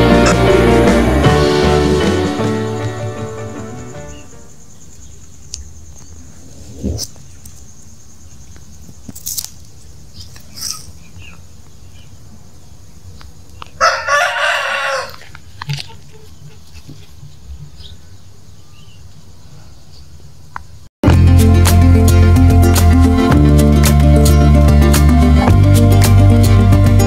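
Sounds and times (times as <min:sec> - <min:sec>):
rooster crowing: 0:13.8 - 0:15.3.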